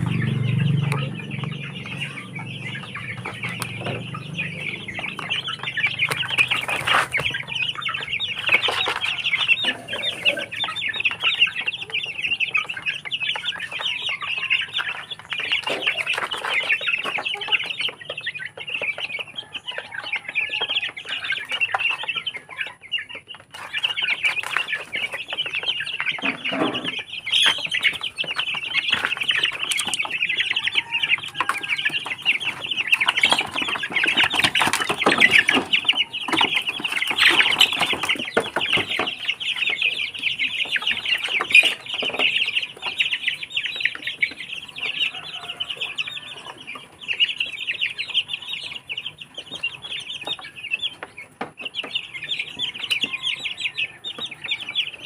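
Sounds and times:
chicks peeping and clucking: 0:00.0 - 0:55.0
wings flapping and scrambling: 0:02.6 - 0:19.0, 0:23.4 - 0:45.9.

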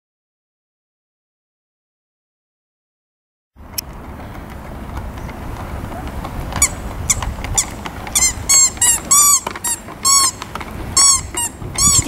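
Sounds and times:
squeeze horn squeaks: 0:06.6 - 0:12.0.

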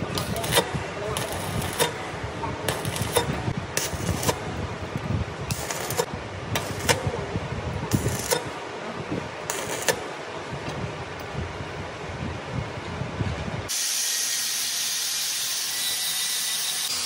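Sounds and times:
welding arc bursts: 0:00.0 - 0:04.9, 0:05.5 - 0:08.6, 0:09.4 - 0:10.2, 0:13.7 - 0:17.0.

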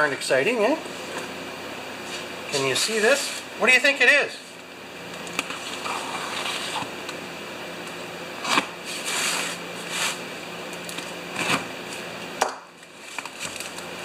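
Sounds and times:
tool slitting cardboard and tape: 0:08.4 - 0:10.2, 0:11.4 - 0:11.7.

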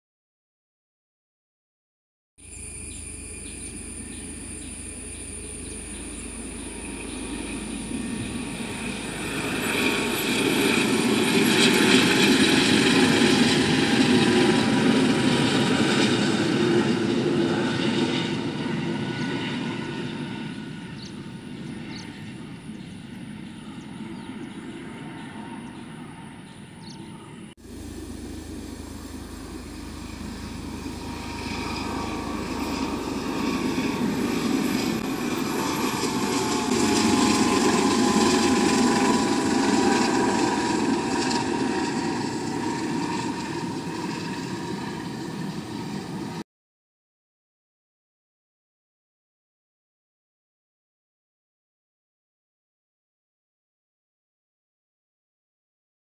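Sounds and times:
helicopter flying past: 0:02.5 - 0:46.4.

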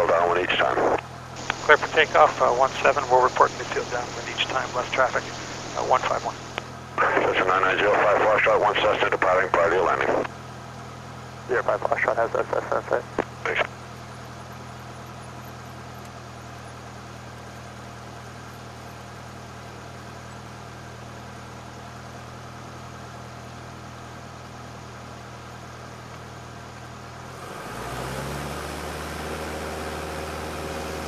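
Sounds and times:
light aircraft engine running: 0:00.0 - 0:31.0.

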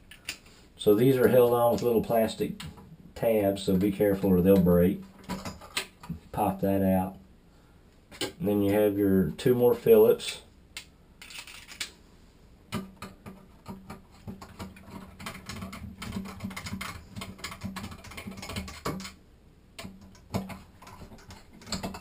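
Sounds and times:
screwdriver clicks and metal scrapes: 0:10.2 - 0:12.0.

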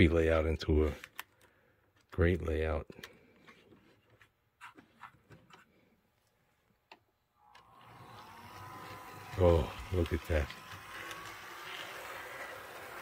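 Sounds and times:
model train motor whine: 0:07.4 - 0:13.0.

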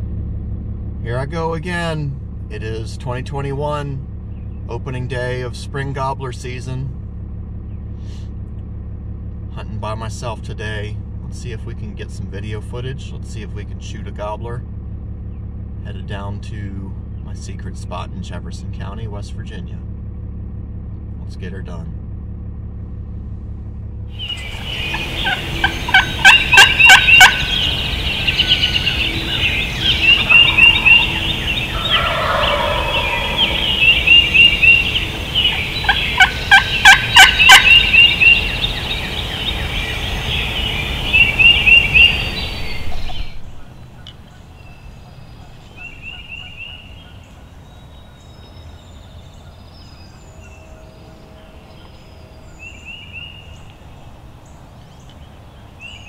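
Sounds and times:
turkey gobbling: 0:24.2 - 0:56.0.

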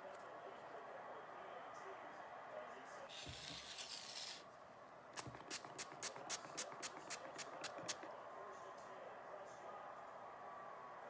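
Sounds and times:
condiment bottle hissing: 0:05.2 - 0:08.1
short sharp squirting strokes: 0:05.2 - 0:08.1.

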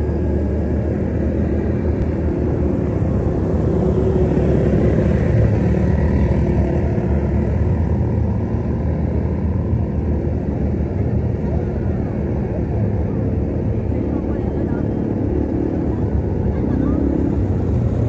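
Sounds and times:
quad bike engines droning: 0:00.0 - 0:18.0.

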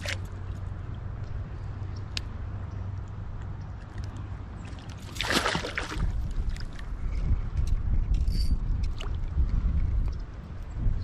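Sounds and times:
water splash: 0:04.8 - 0:06.7.

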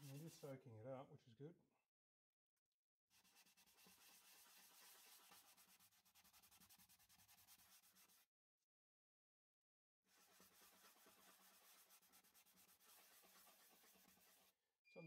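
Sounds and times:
paper towel rubbing on wood: 0:00.0 - 0:00.5, 0:03.2 - 0:08.2, 0:10.1 - 0:14.6.

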